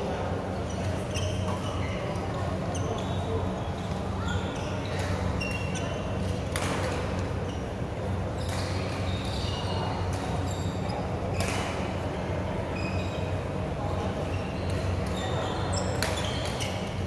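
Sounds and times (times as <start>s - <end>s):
court shoes squeaking: 0.1s - 12.0s, 12.6s - 17.0s
racket hitting shuttlecock: 6.5s - 7.0s.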